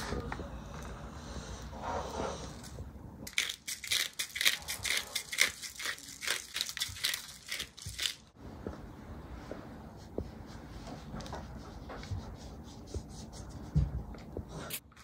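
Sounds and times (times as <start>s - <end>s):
spice shaker rattling: 3.3s - 8.3s.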